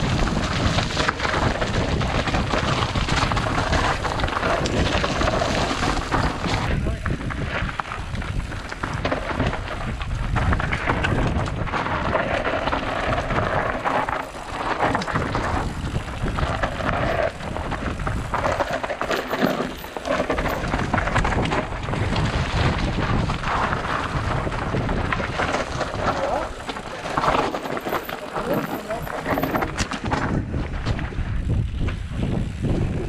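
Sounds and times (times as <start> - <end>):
dirt bike rumbling over rough trail: 0.0 - 33.0
wind buffeting microphone: 0.0 - 33.0.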